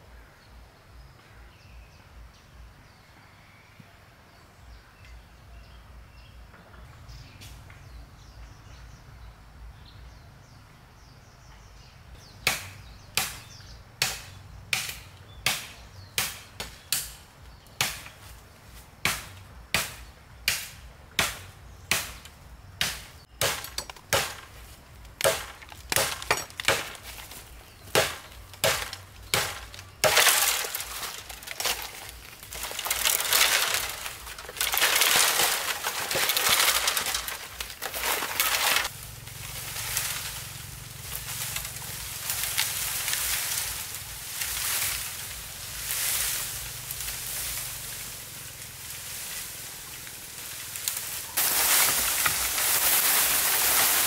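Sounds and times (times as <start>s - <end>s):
bamboo crackling and rustling: 12.2s - 54.0s
blade chopping bamboo: 12.4s - 17.2s, 17.8s - 18.2s, 19.0s - 40.4s.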